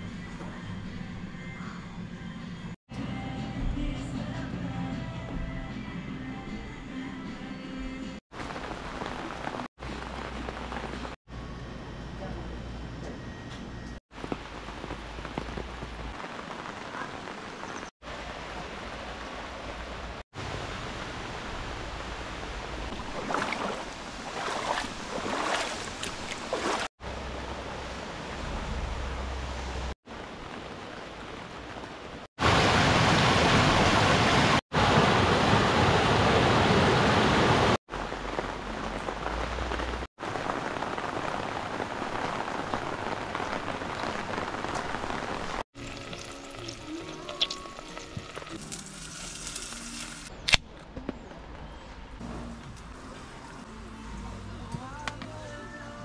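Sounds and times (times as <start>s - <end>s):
heavy rain: 8.3s - 11.2s, 14.1s - 25.6s, 26.5s - 45.6s
stream rushing over rocks: 18.1s - 27.2s, 30.1s - 45.6s.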